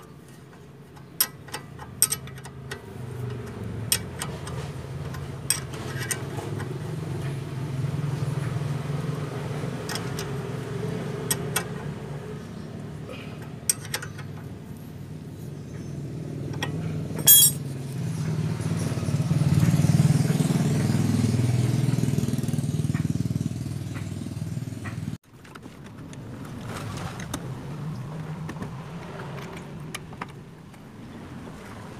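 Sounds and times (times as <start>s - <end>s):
vehicle engine rumbling: 0.1s - 31.9s
wrench clicking on metal bolts: 0.3s - 6.4s, 13.6s - 14.6s, 16.5s - 17.6s.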